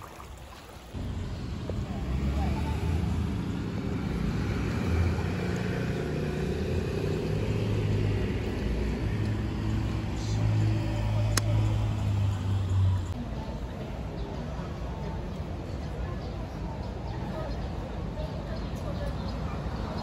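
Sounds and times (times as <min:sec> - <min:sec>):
stream water running around feet: 0:00.0 - 0:03.0.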